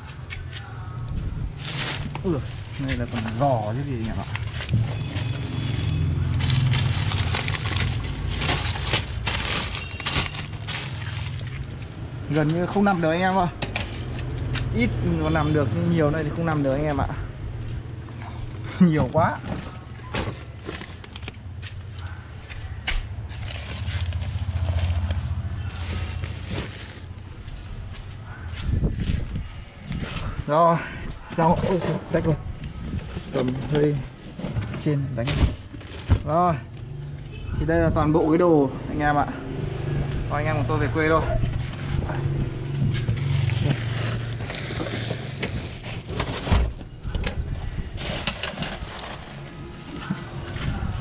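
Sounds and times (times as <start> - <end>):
plastic bags rustling: 1.5 - 14.3, 18.8 - 21.9, 23.2 - 28.2, 35.2 - 36.4, 43.1 - 47.1, 47.9 - 49.8
bundles bumping: 1.7 - 11.8.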